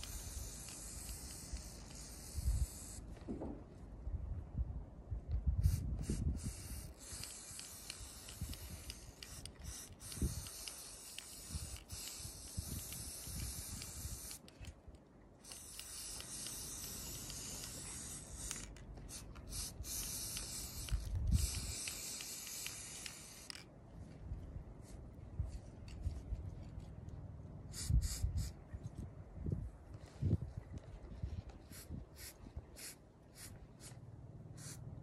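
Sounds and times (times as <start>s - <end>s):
spray paint can hissing: 0.0s - 3.1s, 5.6s - 14.7s, 15.4s - 23.6s, 27.7s - 28.6s, 31.7s - 34.0s, 34.6s - 34.8s.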